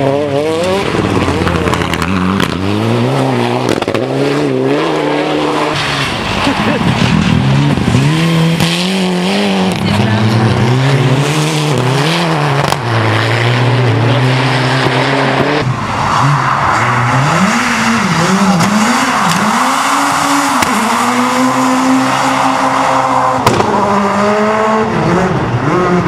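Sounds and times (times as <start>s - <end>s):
rally car engines revving: 0.0s - 26.0s.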